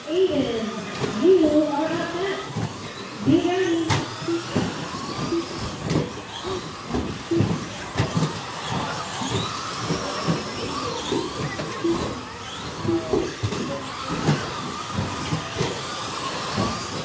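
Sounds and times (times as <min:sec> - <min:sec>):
electric motors whining: 0:00.0 - 0:17.0
toy trucks landing and bumping: 0:03.6 - 0:17.0.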